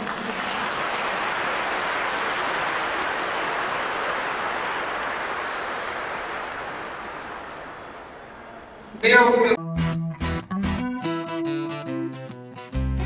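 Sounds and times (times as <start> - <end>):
congregation applauding: 0.0 - 8.9.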